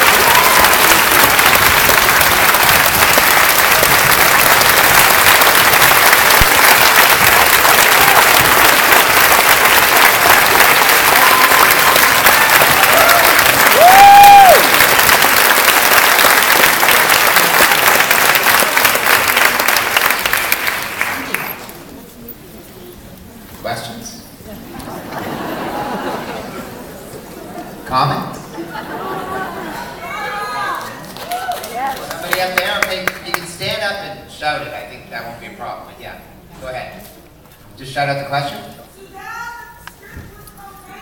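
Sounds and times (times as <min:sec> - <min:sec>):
audience applauding: 0:00.0 - 0:21.9, 0:30.2 - 0:33.6
high-pitched whoop: 0:00.1 - 0:01.0, 0:11.1 - 0:12.1, 0:12.9 - 0:14.8.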